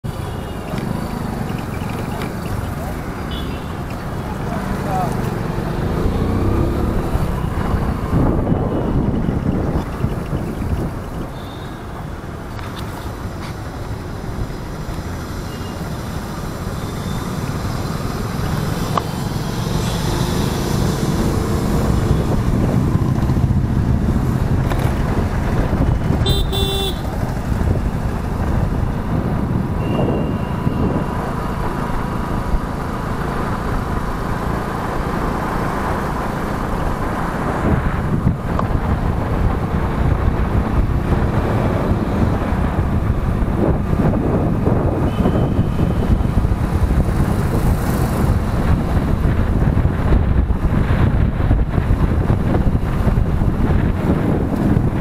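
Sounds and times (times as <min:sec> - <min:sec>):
motorcycle engine and road noise: 0:00.0 - 0:55.0
surrounding traffic: 0:00.0 - 0:55.0
vehicle horn honking: 0:03.3 - 0:03.8, 0:26.2 - 0:27.1, 0:45.0 - 0:46.1.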